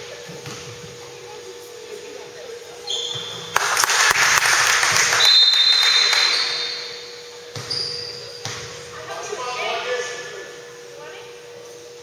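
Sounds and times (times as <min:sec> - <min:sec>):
high-pitched shoe squeak: 0:02.8 - 0:03.4, 0:07.6 - 0:08.4.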